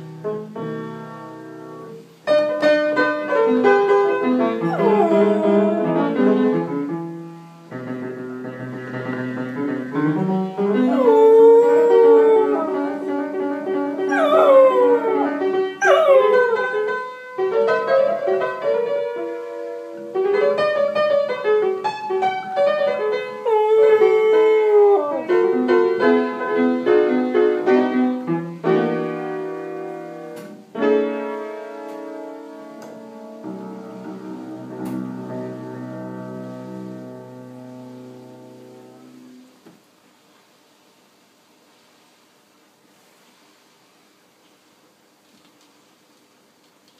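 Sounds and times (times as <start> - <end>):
blues piano playing: 0.0 - 39.4
dog howling: 4.6 - 6.4, 10.8 - 13.1, 14.1 - 16.8, 23.4 - 25.4.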